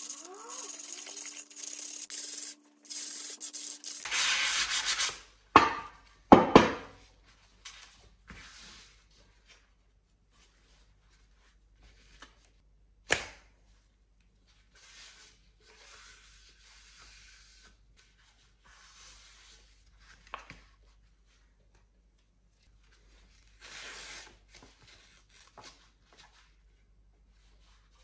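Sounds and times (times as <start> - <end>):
rubbing and scraping metal lids: 0.0 - 4.0
sandpaper rasp: 0.0 - 5.2.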